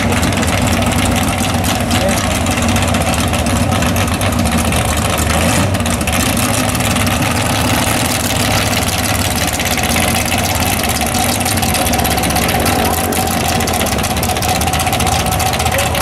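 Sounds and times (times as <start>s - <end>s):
drag racing engines idling: 0.0s - 16.0s.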